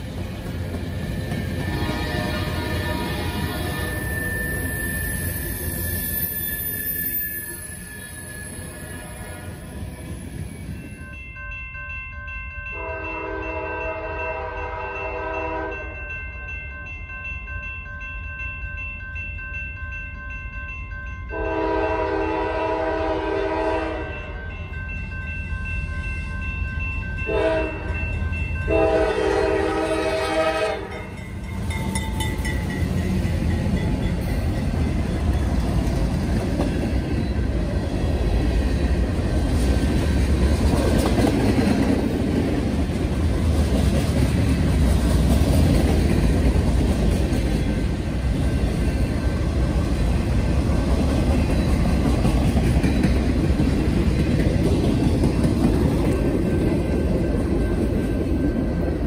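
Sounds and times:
train wheels rumbling on rails: 0.0 - 11.2, 21.4 - 59.0
crossing bell ringing: 0.0 - 59.0
train horn blasts: 1.6 - 4.3, 8.8 - 9.8, 12.8 - 16.0, 21.3 - 24.4, 27.3 - 28.0, 28.7 - 31.2.

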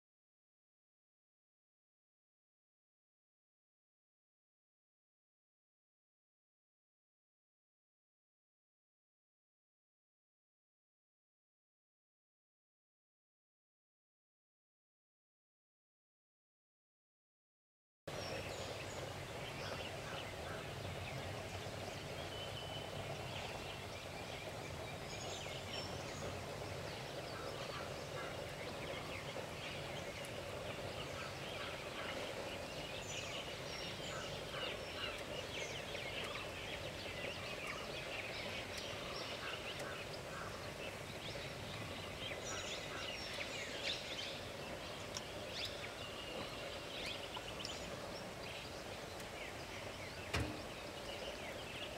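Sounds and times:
birds calling and chirping: 18.1 - 51.9.

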